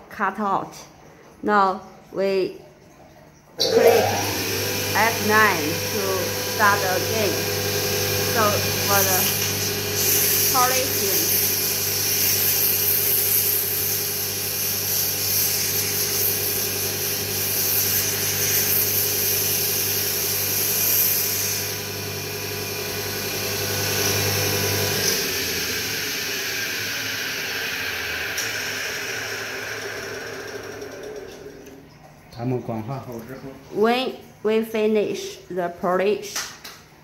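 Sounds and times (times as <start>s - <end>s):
lathe spindle whine: 3.6s - 12.8s, 21.8s - 31.8s.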